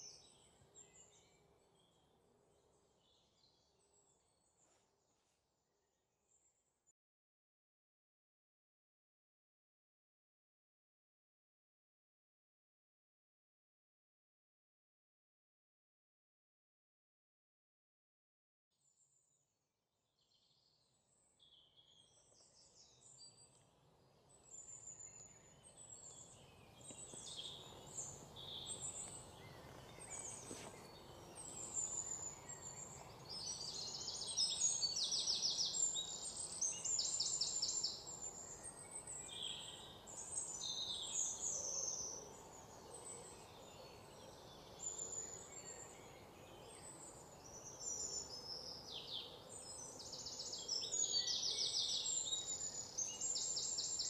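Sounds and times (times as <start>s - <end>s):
birds chirping and trilling: 24.3s - 54.0s.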